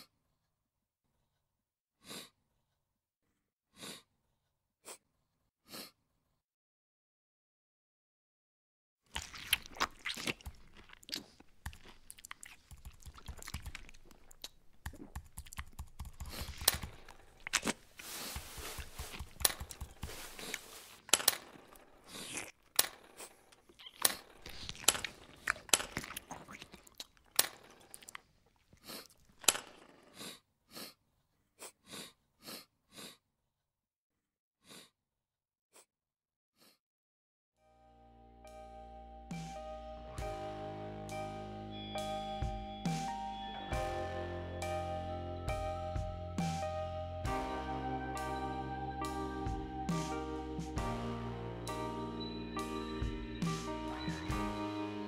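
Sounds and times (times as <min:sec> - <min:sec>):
nasal sniffling: 0:02.0 - 0:02.4, 0:03.8 - 0:04.1, 0:05.7 - 0:06.0, 0:16.2 - 0:21.1, 0:28.7 - 0:31.0, 0:31.6 - 0:33.2, 0:34.6 - 0:35.0.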